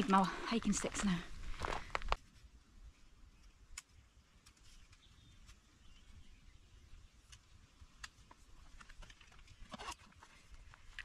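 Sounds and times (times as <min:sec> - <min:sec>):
faint bird chirp: 0:02.9 - 0:07.6.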